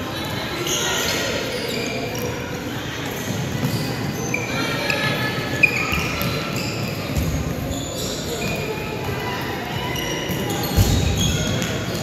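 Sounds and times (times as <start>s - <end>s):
spectators chattering: 0.0s - 12.0s
sneakers squeaking on wooden floor: 0.6s - 9.0s, 9.8s - 12.0s.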